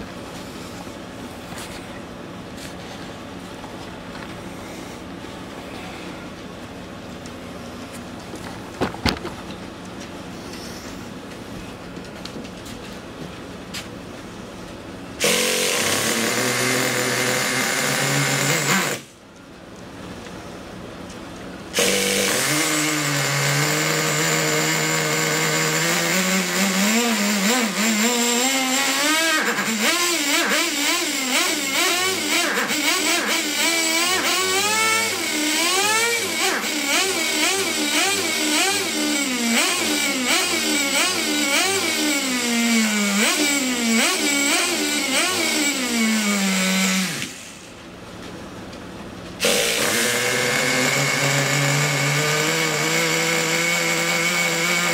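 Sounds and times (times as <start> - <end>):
model car engine revving: 15.2 - 19.1, 21.8 - 47.6, 49.4 - 54.9.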